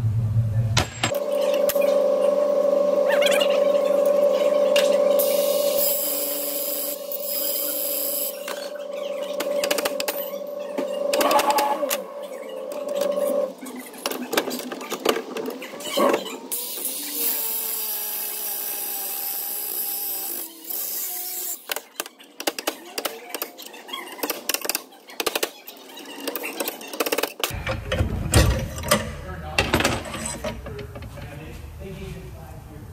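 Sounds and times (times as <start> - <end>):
cutoff wheel whine: 1.0 - 13.6.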